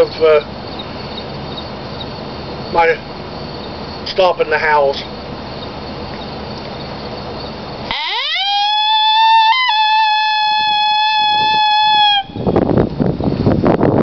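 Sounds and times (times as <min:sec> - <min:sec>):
horn predator call howl: 0:07.8 - 0:12.4.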